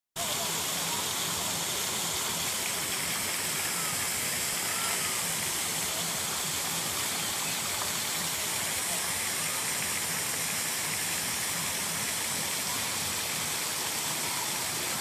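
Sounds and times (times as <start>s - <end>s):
rushing hissing background noise: 0.2s - 15.0s.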